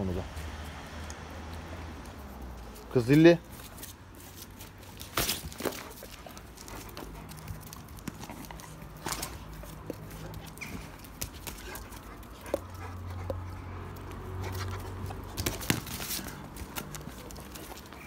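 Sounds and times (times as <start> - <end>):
dogs whimpering and scuffling: 1.8 - 18.0.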